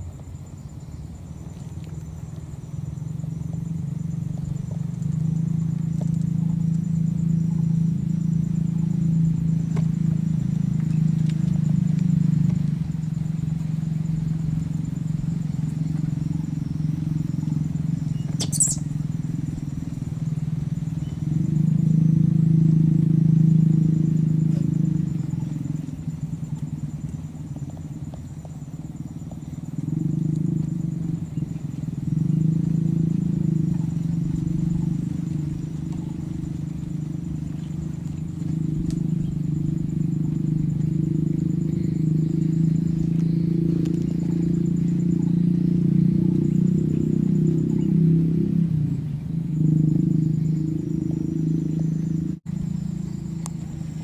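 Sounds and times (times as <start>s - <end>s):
faint high whine: 0.0s - 48.1s
low motor hum: 0.0s - 54.0s
sharp click: 18.3s - 18.8s.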